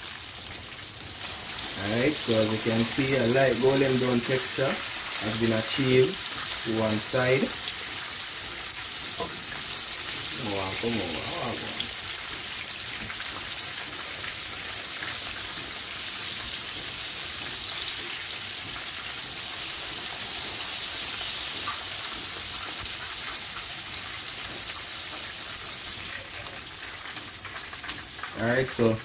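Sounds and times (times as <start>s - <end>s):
chicken frying in hot oil: 0.0s - 29.0s.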